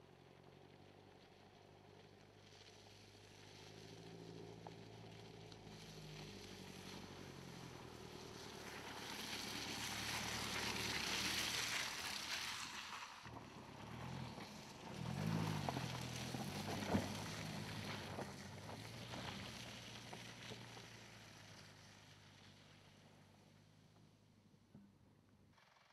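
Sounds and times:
car engine at low revs: 0:00.0 - 0:25.9
tyres over leaves and gravel: 0:02.6 - 0:21.0.

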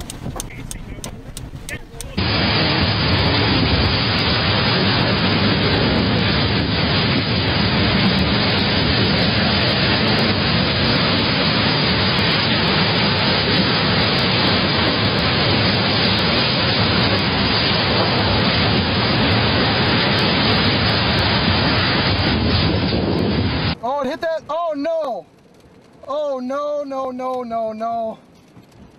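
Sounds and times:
storm wind with driving rain: 0:00.0 - 0:28.9.

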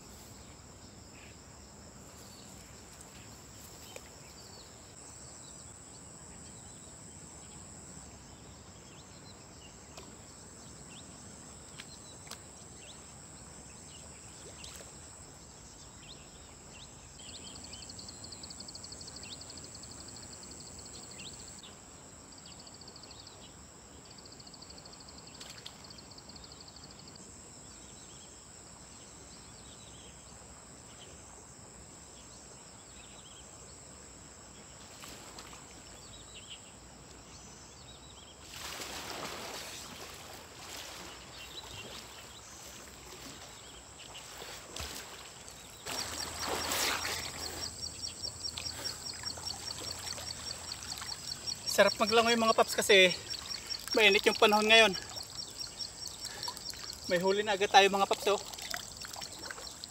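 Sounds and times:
insect chorus shrilling: 0:37.4 - 0:59.9.

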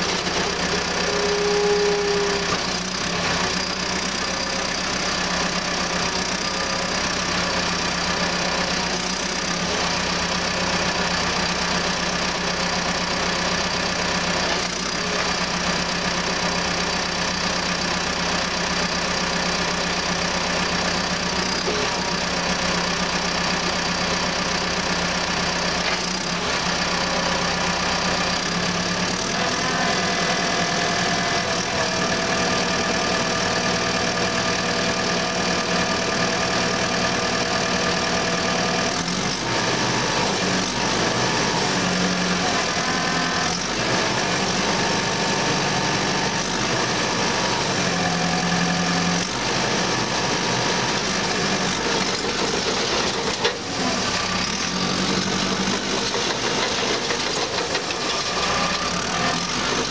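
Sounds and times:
bulldozer diesel engine running: 0:00.0 - 0:59.9
hydraulics working: 0:43.8 - 0:59.9.

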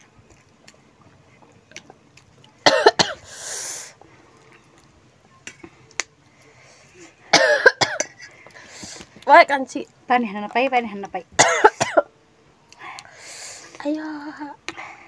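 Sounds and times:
woman coughing: 0:02.6 - 0:03.2, 0:07.3 - 0:08.2, 0:11.4 - 0:12.1
breathy hiss: 0:03.0 - 0:04.3, 0:08.2 - 0:09.2, 0:12.8 - 0:15.0.

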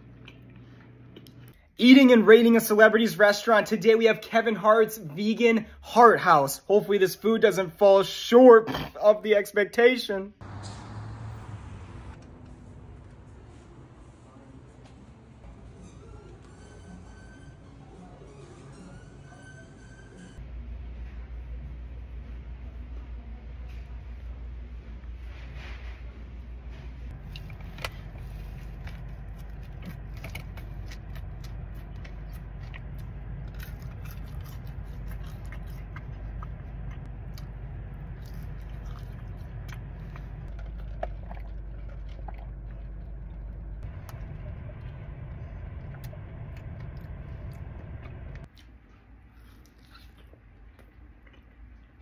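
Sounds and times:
steady low hum: 0:20.4 - 0:52.0
person chewing crunchy food: 0:27.1 - 0:52.0.

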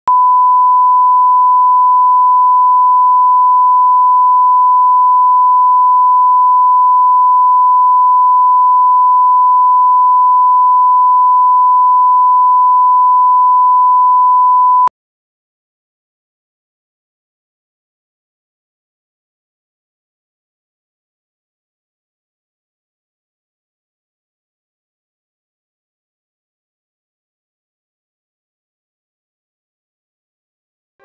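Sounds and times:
pure sine test tone: 0:00.1 - 0:14.9.

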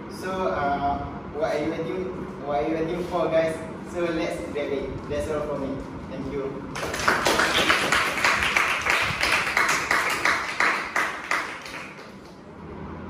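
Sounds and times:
audience applauding: 0:06.8 - 0:12.4.

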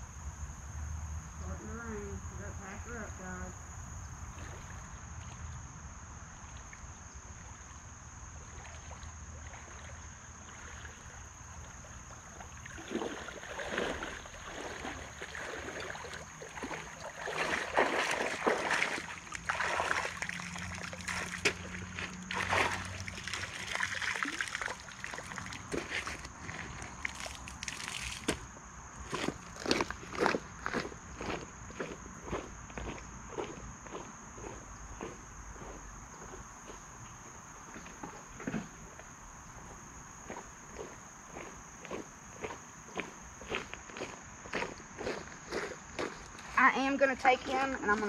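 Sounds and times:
wading splashes in creek: 0:04.3 - 0:28.5.

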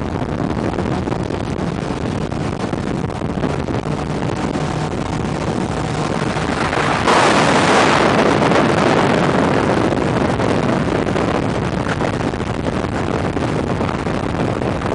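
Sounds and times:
car road noise: 0:00.0 - 0:13.2
wind buffeting microphone: 0:00.0 - 0:14.9
loud rush: 0:00.6 - 0:10.2.

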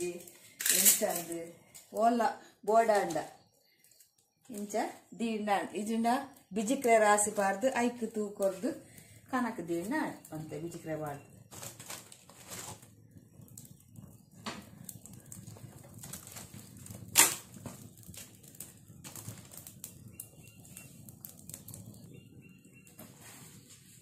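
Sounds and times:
firewood crackling: 0:00.0 - 0:24.0
low fire rumble: 0:00.0 - 0:24.0.

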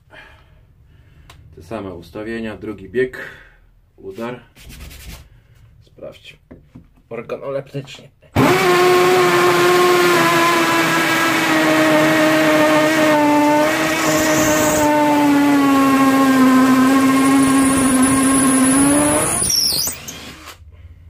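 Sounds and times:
hammer drill boring into brick: 0:13.2 - 0:20.6.

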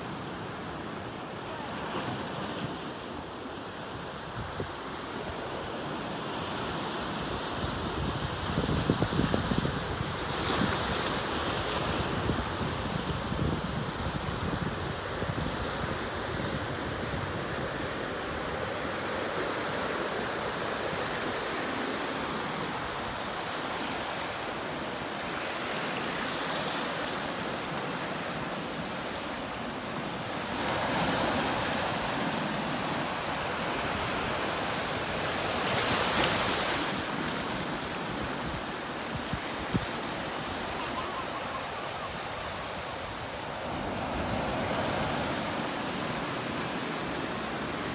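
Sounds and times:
ocean surf on rocks: 0:00.0 - 0:47.9
waves breaking: 0:18.0 - 0:47.9.

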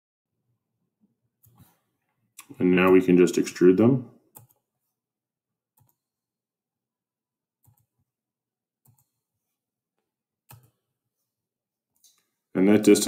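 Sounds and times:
computer mouse clicks: 0:04.3 - 0:04.6, 0:05.8 - 0:06.0, 0:07.6 - 0:07.9, 0:08.8 - 0:09.2, 0:10.5 - 0:10.8.

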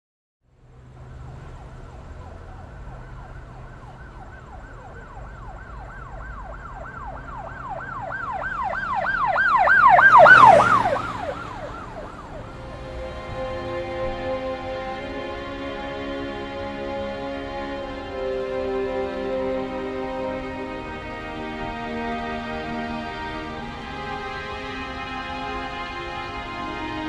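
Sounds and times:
vehicle passing rush: 0:00.4 - 0:27.0
emergency siren yelping: 0:01.1 - 0:27.0
soft music with held tones: 0:12.6 - 0:27.0.

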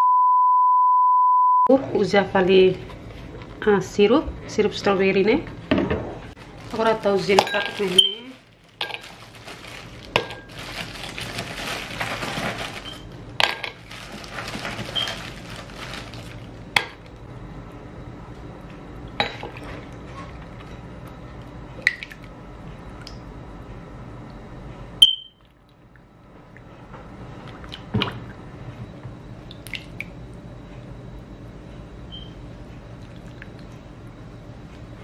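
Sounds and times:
rustling: 0:06.4 - 0:13.1, 0:13.8 - 0:16.5
utensils clattering: 0:06.7 - 0:16.2.

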